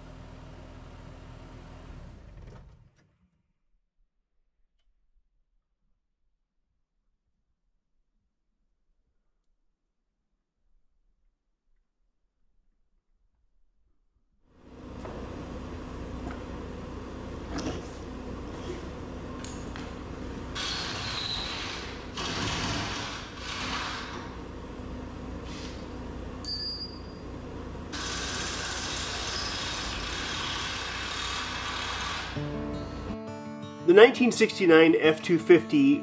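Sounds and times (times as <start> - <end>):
diesel engine running: 14.7 - 26.4, 27.2 - 33.2.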